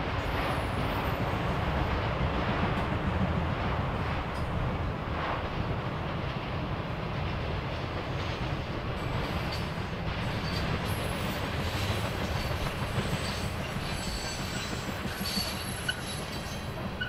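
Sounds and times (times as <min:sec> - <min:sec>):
train rumbling on rails: 0:00.0 - 0:17.0
wheels squealing: 0:10.4 - 0:16.7.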